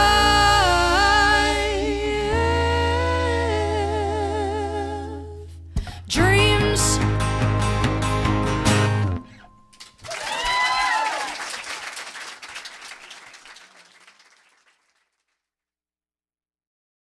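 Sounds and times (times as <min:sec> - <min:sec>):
song music: 0:00.0 - 0:05.2, 0:06.4 - 0:09.6
applause: 0:09.8 - 0:15.4
crowd cheering: 0:10.0 - 0:14.9.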